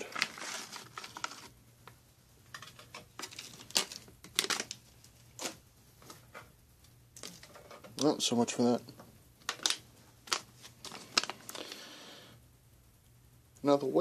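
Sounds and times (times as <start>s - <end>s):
foil pouches crinkling: 0.0s - 1.6s, 2.5s - 5.6s, 9.4s - 11.9s.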